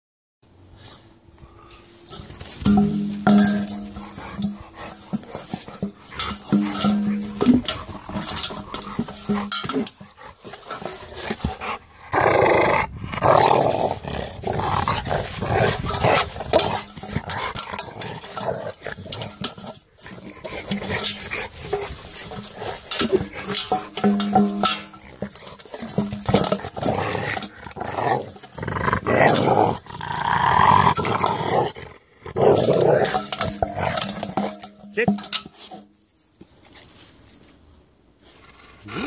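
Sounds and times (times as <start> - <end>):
metal bowl clanking and scraping: 1.6 - 31.7, 32.3 - 37.4
dog growling: 2.8 - 19.5, 20.1 - 34.7.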